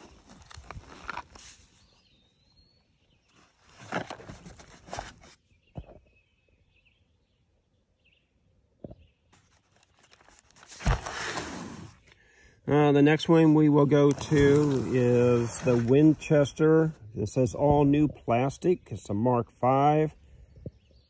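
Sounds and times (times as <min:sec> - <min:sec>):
cardboard boxes rustling and scraping: 0:00.0 - 0:02.1, 0:03.3 - 0:05.4, 0:09.4 - 0:12.2, 0:13.8 - 0:16.8
faint bird chirps: 0:01.6 - 0:03.8, 0:05.3 - 0:10.4.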